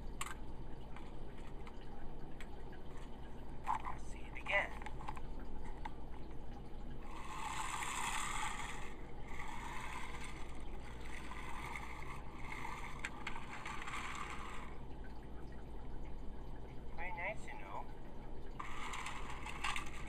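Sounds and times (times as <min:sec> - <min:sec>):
toy train wheels rolling on track: 0:07.0 - 0:14.8, 0:18.6 - 0:20.0.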